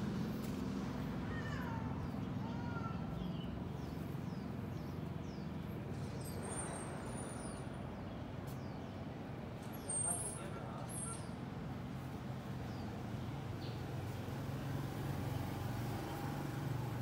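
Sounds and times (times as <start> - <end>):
birds chirping: 1.3 - 11.5.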